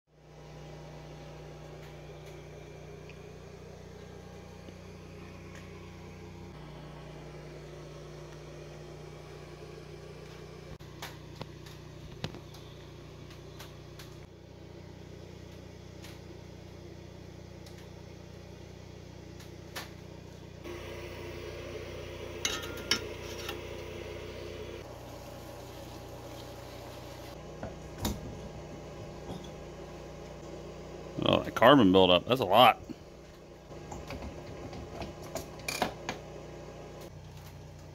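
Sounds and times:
workshop low hum: 0:00.2 - 0:37.9.

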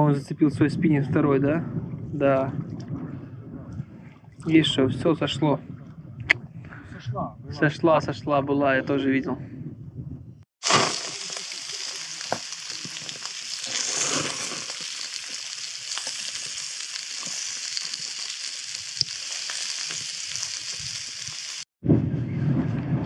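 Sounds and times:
food sizzling in a pan: 0:10.6 - 0:21.7.

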